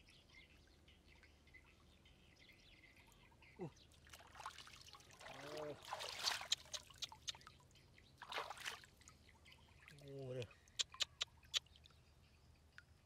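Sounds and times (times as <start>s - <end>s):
water drips and plops: 3.9s - 12.0s
hands splashing in muddy water: 4.2s - 7.4s, 8.2s - 8.9s.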